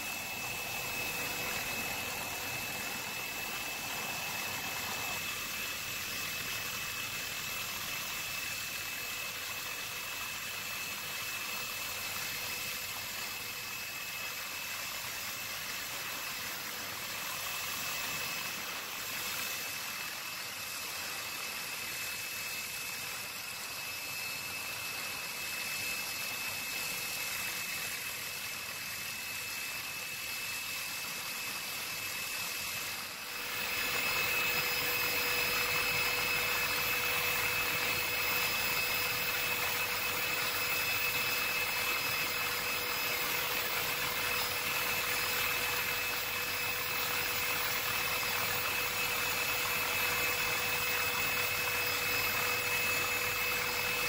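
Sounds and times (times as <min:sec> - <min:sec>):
high whine: 0:00.0 - 0:06.1
helicopter engine drone: 0:00.0 - 0:54.0.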